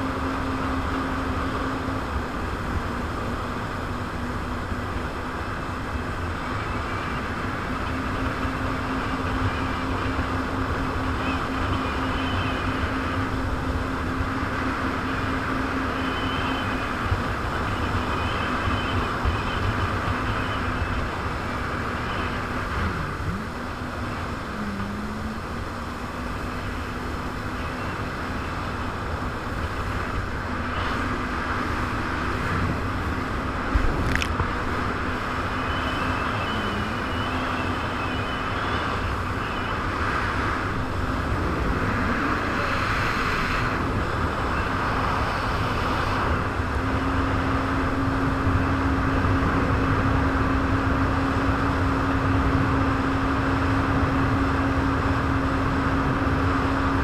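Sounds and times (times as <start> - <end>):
jet ski engine running: 15.1 - 37.3.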